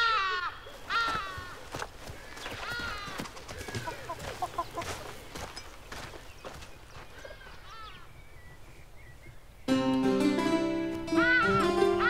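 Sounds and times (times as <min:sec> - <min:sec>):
hen calling: 0:00.0 - 0:05.3, 0:11.0 - 0:12.0
hen clucking softly: 0:03.7 - 0:05.0.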